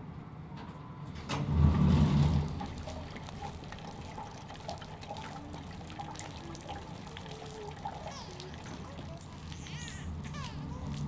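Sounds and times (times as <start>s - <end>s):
sliding door rumbling: 1.2s - 3.2s
water trickling from watering can: 1.8s - 11.0s.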